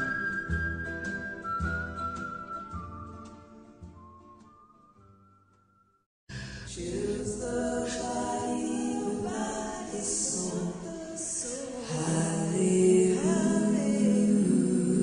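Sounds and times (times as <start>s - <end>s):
unaccompanied group singing: 6.7s - 15.0s.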